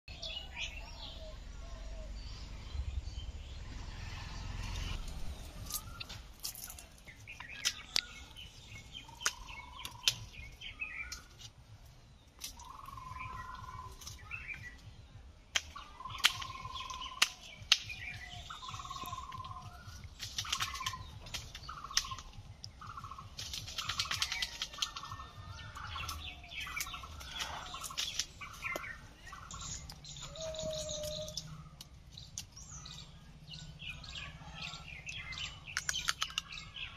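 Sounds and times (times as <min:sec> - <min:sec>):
birds chirping and trilling: 0:00.1 - 0:36.9
sharp clicks: 0:35.6 - 0:36.6.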